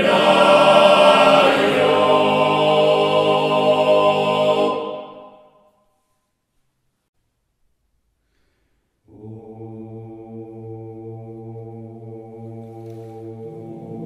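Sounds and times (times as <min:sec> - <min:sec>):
men's choir singing a low chord: 0:00.0 - 0:05.4, 0:09.1 - 0:14.0.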